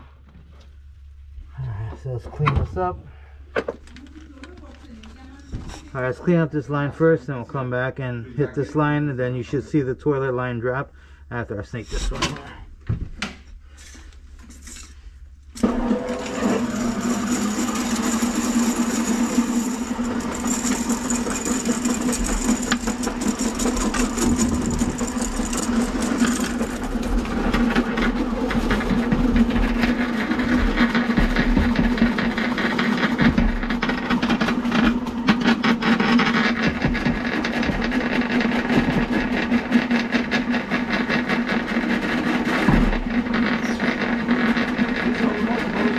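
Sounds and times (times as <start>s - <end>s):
drain cleaning machine humming: 15.5s - 45.9s.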